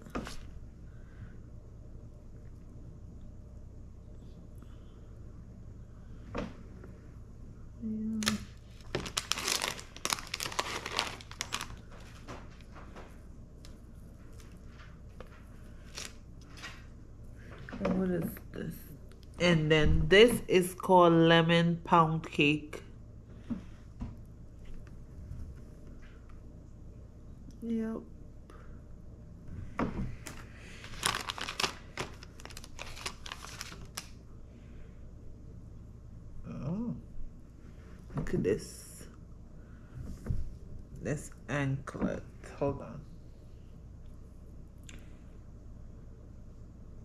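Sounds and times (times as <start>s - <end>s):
plastic bag crinkling: 8.3s - 12.3s, 14.3s - 16.2s, 30.2s - 34.2s.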